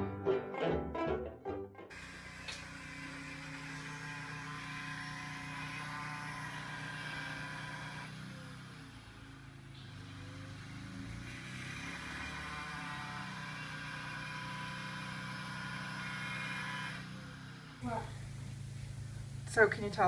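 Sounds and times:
generator engine hum: 1.5s - 20.0s
angle grinder cutting metal: 2.0s - 17.6s.

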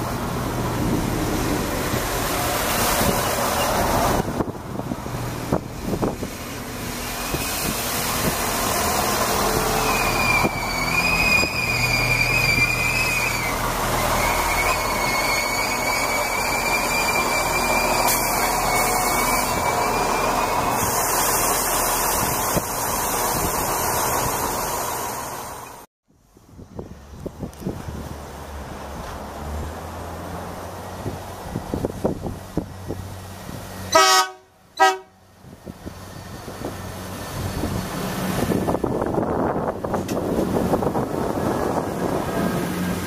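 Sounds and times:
train running noise on rails: 0.0s - 43.0s
high brake squeal: 9.5s - 22.3s.

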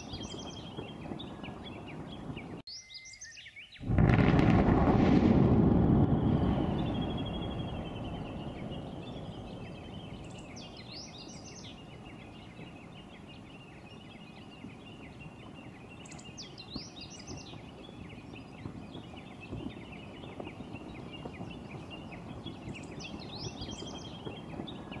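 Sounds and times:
small birds chirping: 0.0s - 3.9s, 6.2s - 25.0s
deep volcanic boom: 3.8s - 12.5s.

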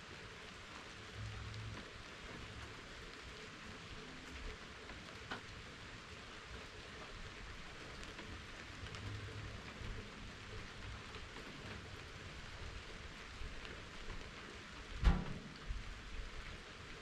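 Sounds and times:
steady rain falling: 0.0s - 17.0s
faint low rumble: 0.6s - 17.0s.

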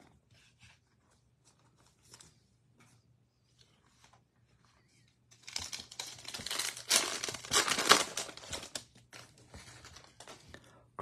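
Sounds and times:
foil wrapper crinkling and tearing: 5.4s - 8.9s.

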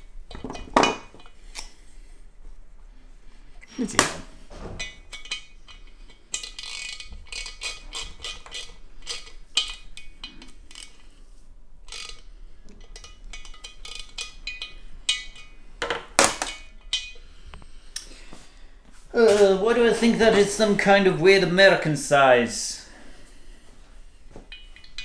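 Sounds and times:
metal parts and tools clinking: 0.3s - 1.7s, 4.7s - 11.2s, 11.8s - 17.3s, 24.5s - 25.0s.

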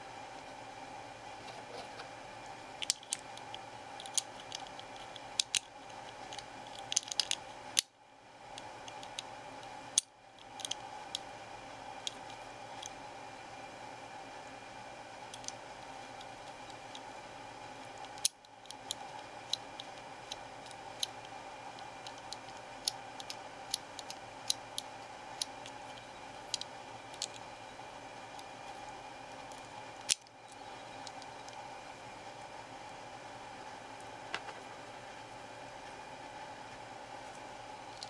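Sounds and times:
steady background hiss: 0.0s - 38.0s
small parts clicking and tapping: 2.8s - 7.9s, 8.5s - 11.3s, 12.0s - 13.0s, 15.3s - 17.1s, 17.8s - 27.5s, 29.4s - 31.6s, 37.3s - 38.0s.

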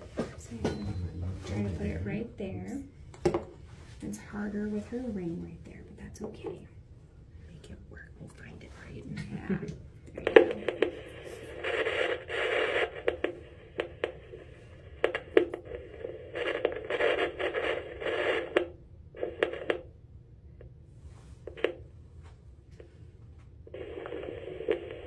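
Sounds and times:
scratchy clicks: 10.0s - 14.4s, 15.0s - 19.9s.

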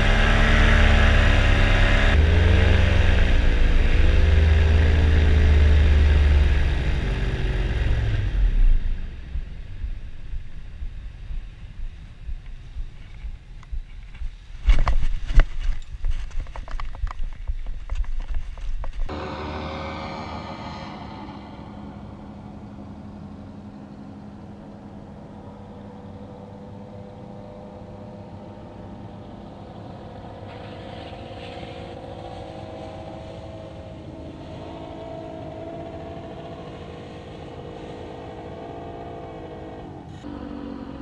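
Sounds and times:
paramotor engine running: 19.1s - 41.0s.

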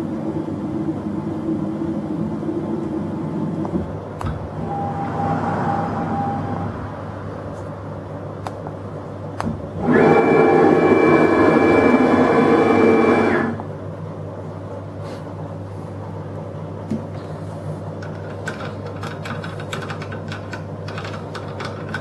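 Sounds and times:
low steady hum: 0.0s - 22.0s
motor whine: 9.8s - 13.7s.

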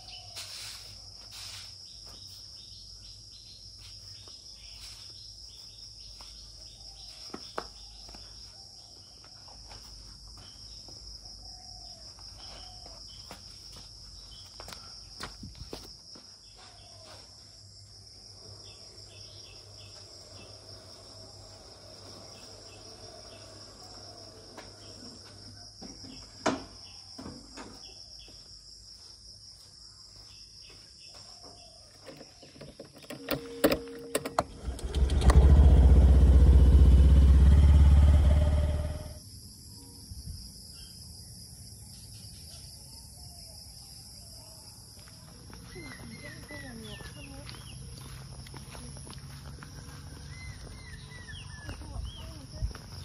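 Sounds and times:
high insect drone: 0.0s - 53.0s
footsteps: 45.0s - 50.9s.

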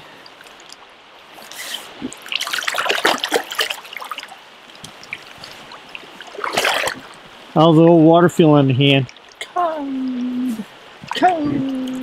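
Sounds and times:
river rushing: 0.0s - 12.0s
water splashing off hands: 1.5s - 5.6s, 6.3s - 7.1s.

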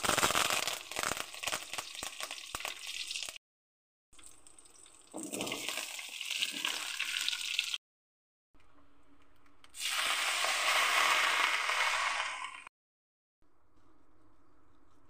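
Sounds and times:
oil sizzling in a wok: 0.0s - 3.4s, 5.6s - 7.8s, 9.8s - 12.7s
water pouring into a wok: 0.6s - 3.4s, 4.2s - 7.8s, 9.8s - 12.7s.

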